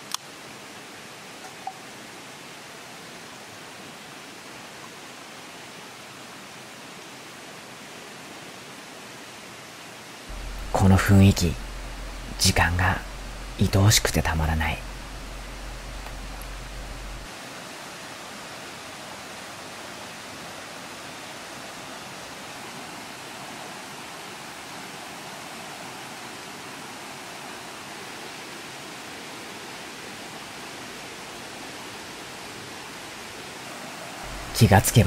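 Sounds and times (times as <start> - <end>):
low hum: 10.3 - 17.3, 34.3 - 35.0
steady rushing noise: 10.3 - 17.3, 33.8 - 35.0.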